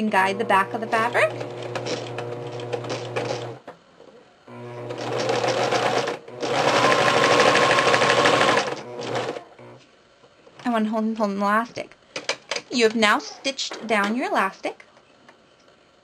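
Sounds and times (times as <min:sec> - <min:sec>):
sewing machine stitching: 0:00.1 - 0:03.6, 0:04.5 - 0:09.8.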